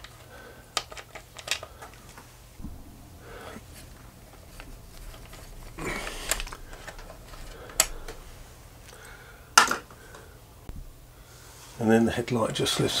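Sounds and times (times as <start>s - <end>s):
metal clicks: 0.8s - 11.0s
scratchy rattling: 2.6s - 11.2s.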